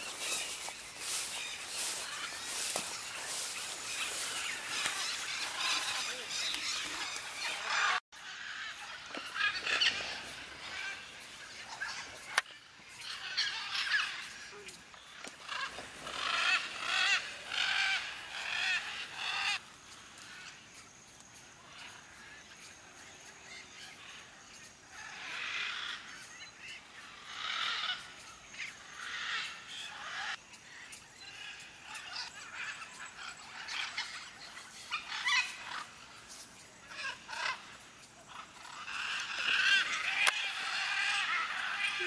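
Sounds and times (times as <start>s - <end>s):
macaws squawking: 0.0s - 14.5s, 15.2s - 19.6s, 27.0s - 30.4s, 31.4s - 42.0s.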